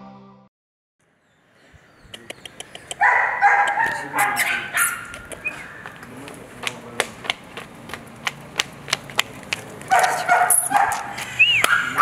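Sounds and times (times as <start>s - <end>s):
sharp clicks and taps: 2.1s - 3.0s, 3.6s - 4.0s, 5.1s - 9.4s
small dog yapping: 2.9s - 6.0s, 9.9s - 12.0s.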